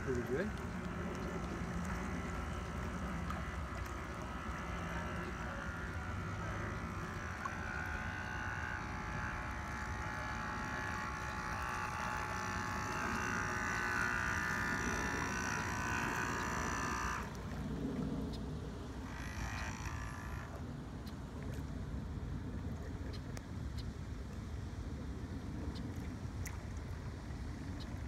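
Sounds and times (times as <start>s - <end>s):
model boat motor whining: 0.0s - 21.7s.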